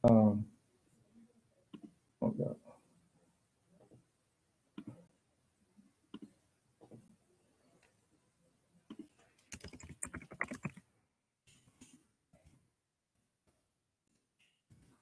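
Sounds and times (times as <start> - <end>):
computer keyboard typing: 8.9 - 10.8.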